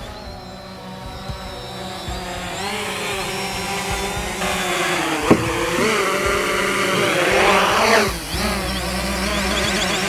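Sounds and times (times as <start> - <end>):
drone propellers whining: 0.0 - 10.0
drone knocking on ground: 4.0 - 8.3.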